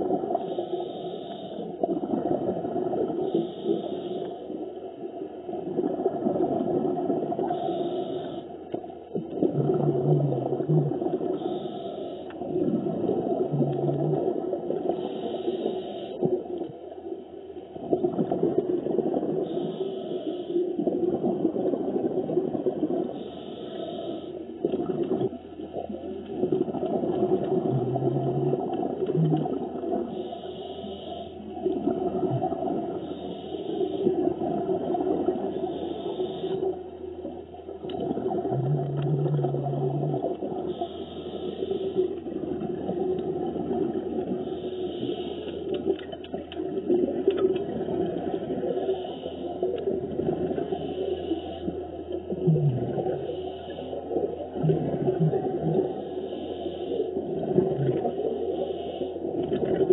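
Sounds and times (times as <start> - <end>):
diver breathing through regulator: 0.3 - 1.8, 3.2 - 4.6, 7.4 - 8.7, 10.2 - 12.5, 14.8 - 16.4, 19.4 - 20.8, 23.0 - 24.6, 27.9 - 34.4, 35.0 - 37.1, 38.7 - 42.4, 44.0 - 45.9, 48.2 - 49.8, 50.4 - 59.4
bubbles gurgling underwater: 1.8 - 3.4, 5.4 - 7.7, 9.1 - 11.6, 12.4 - 15.3, 17.7 - 19.6, 20.8 - 23.2, 24.6 - 30.2, 31.6 - 33.1, 34.0 - 35.7, 36.6 - 40.8, 42.2 - 44.6, 45.7 - 49.0, 49.6 - 50.9, 51.7 - 53.4, 54.1 - 56.0, 57.2 - 58.4, 59.2 - 59.9.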